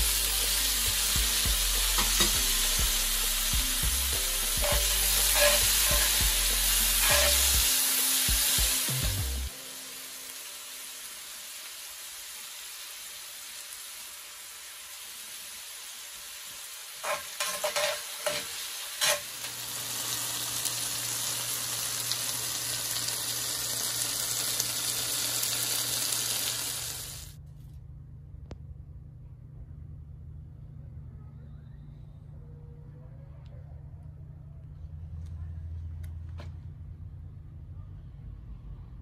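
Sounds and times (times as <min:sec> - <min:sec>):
vegetables sizzling in skillet: 0:00.0 - 0:27.4
metal tongs scraping pan: 0:04.6 - 0:07.6, 0:17.0 - 0:19.5.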